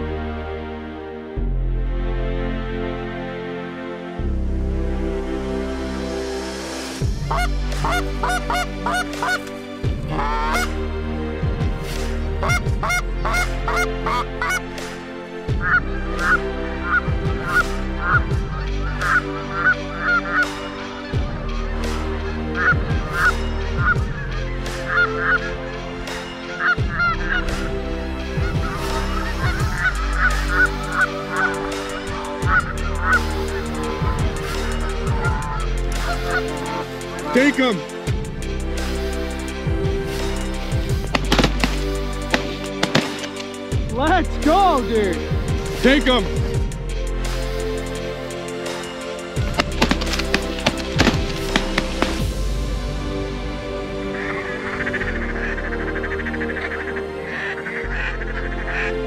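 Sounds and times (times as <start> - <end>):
background music: 0.0 - 59.0
geese honking: 7.2 - 10.9, 12.3 - 39.5, 40.3 - 46.3, 47.4 - 52.4, 53.9 - 59.0.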